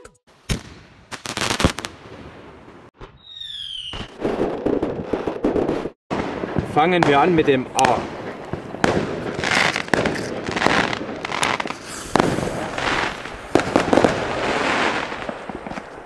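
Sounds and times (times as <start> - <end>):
firework bangs: 0.4 - 16.0
firework fuse hissing: 9.2 - 15.3.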